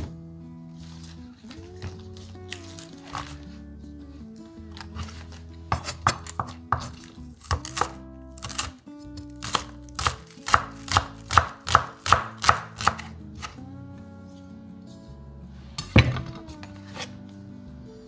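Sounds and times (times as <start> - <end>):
knife chopping on wooden board: 4.8 - 8.7, 9.4 - 13.6.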